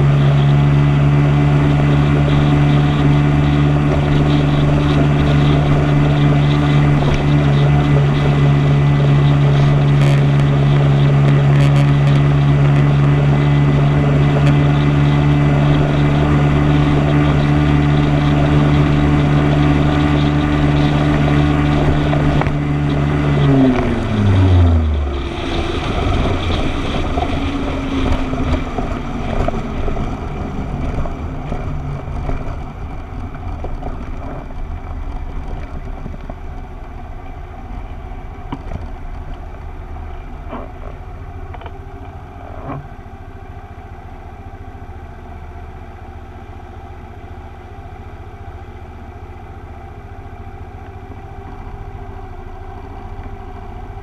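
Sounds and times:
wind noise on microphone: 0.0s - 39.4s
motorcycle engine cruising: 0.0s - 54.0s
road noise: 0.0s - 54.0s.

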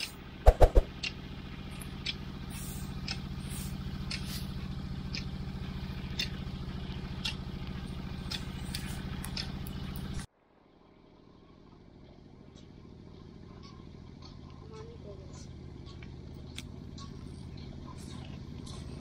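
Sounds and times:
engine running steadily: 0.0s - 19.0s
sharp clicks: 8.3s - 10.2s.

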